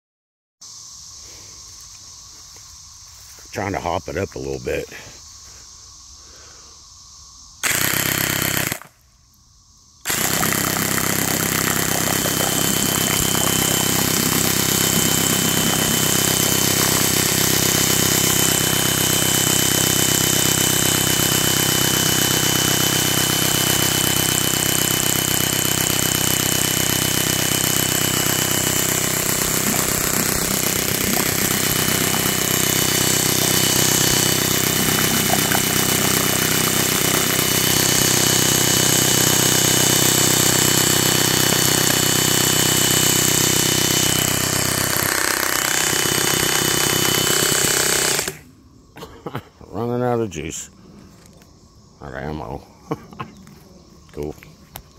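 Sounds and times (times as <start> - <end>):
airsoft mini-gun firing: 7.6 - 9.0.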